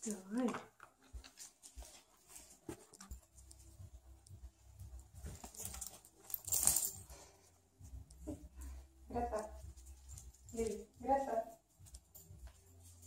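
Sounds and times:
dog paws on wooden floor: 0:00.0 - 0:13.0
clinking rattle: 0:05.3 - 0:07.2.

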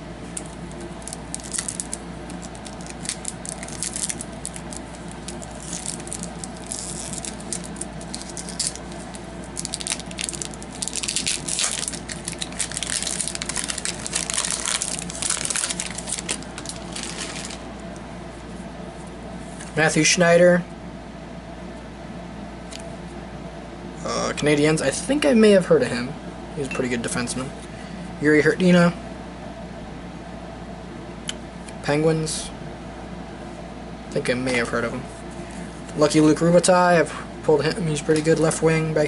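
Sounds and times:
wrapper tearing and crinkling: 0:00.4 - 0:17.7.

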